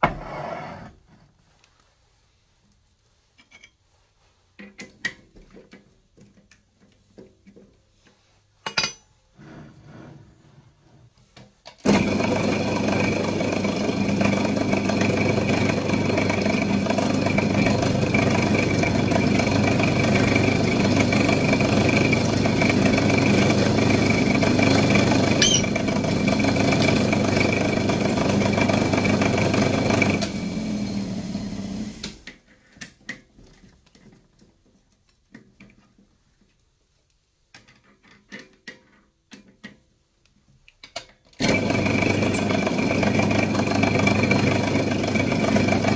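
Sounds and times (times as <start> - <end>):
drill press motor humming: 11.9 - 32.2, 41.4 - 45.9
drill bit squeaking in steel: 25.4 - 25.8.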